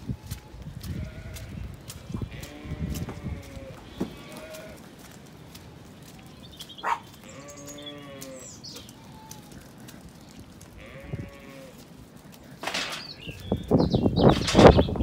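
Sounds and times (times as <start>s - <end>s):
sheep bleating: 0.3s - 4.8s, 7.1s - 9.7s, 10.7s - 11.8s.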